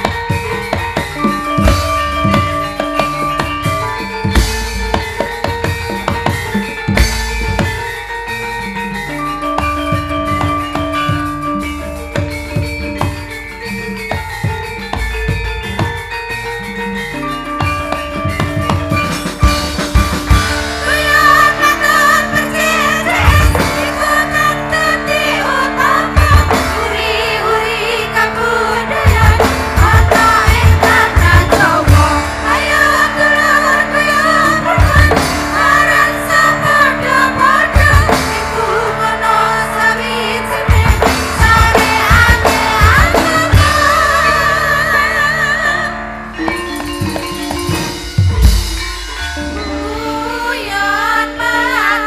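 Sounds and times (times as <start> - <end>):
gamelan music over sound system: 0.0 - 52.0
women singing together: 20.8 - 46.0, 49.8 - 52.0.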